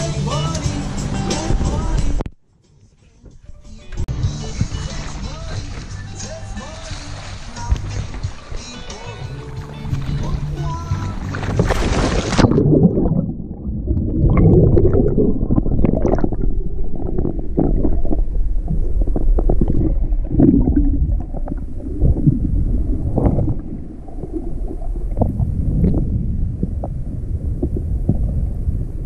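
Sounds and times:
splash into water: 6.6s - 8.6s, 9.5s - 13.4s
underwater rumble and gurgle: 9.4s - 29.0s.

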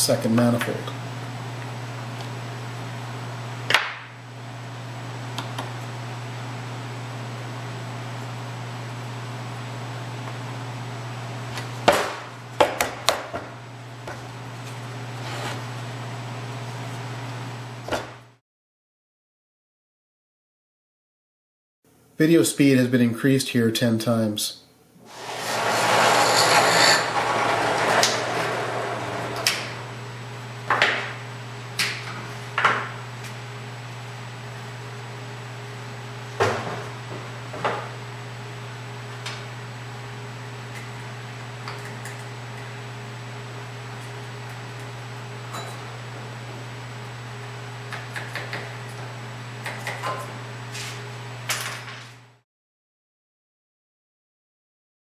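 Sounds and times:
hole saw cutting plywood: 25.0s - 29.9s
drill press motor hum: 25.0s - 31.4s.

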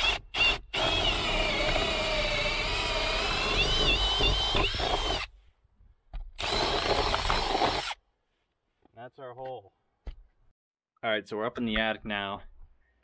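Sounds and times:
cordless drill boring wood: 0.0s - 5.3s, 6.4s - 8.0s.

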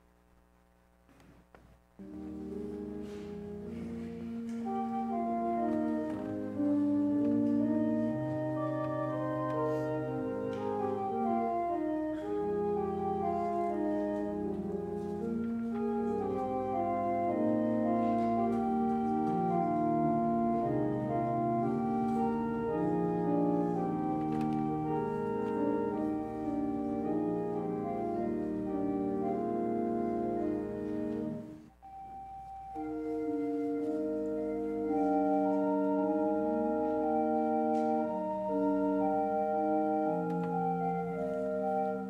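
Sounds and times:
church organ playing chords: 2.0s - 42.0s.

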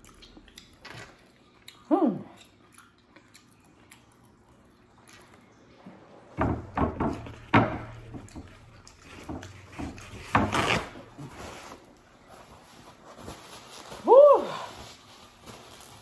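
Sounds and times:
paper towels tearing: 10.1s - 16.0s.

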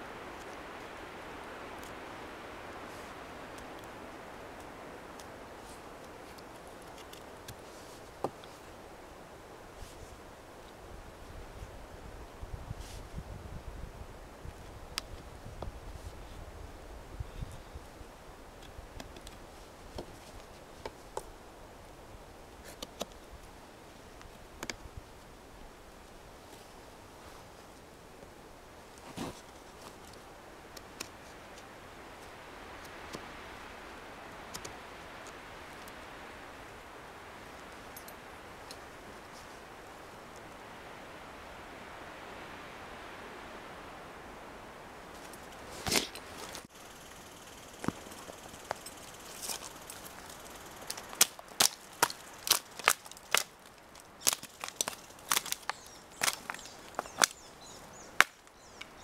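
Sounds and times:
faint steady hiss: 0.0s - 59.0s
dry twigs snapping: 47.8s - 58.9s.

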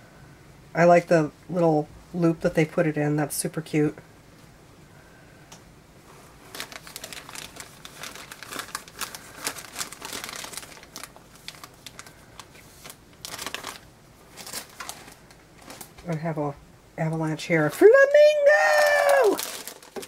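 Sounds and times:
plastic and tissue paper crinkling: 6.1s - 16.4s, 17.3s - 20.0s.

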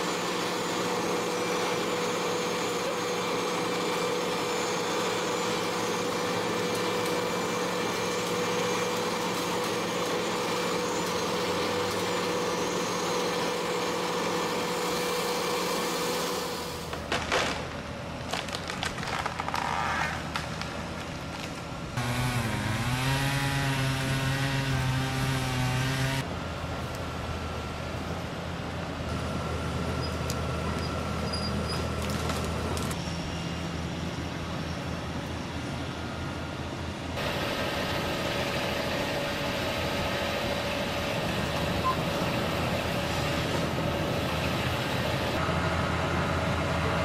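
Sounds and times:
diesel excavator engine revving: 0.0s - 17.1s, 20.9s - 33.1s, 37.2s - 47.0s
wood cracking and snapping: 16.9s - 21.7s.

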